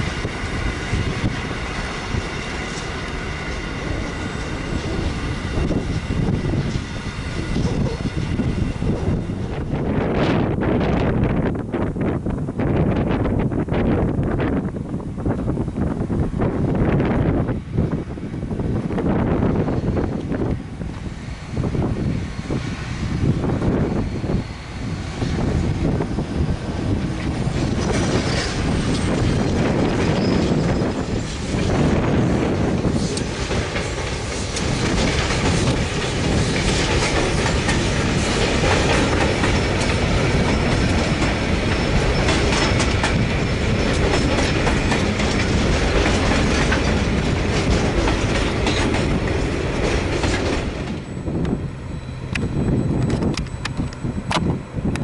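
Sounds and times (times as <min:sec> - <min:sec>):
train wheels clickety-clack: 0:00.0 - 0:10.4, 0:23.5 - 0:51.6
diesel locomotive passing: 0:00.0 - 0:55.0.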